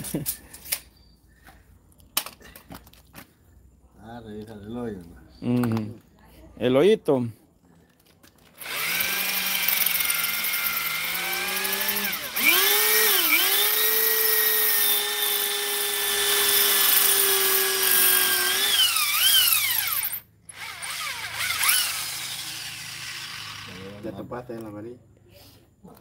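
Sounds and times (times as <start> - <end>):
electric drill whining: 8.6 - 24.1.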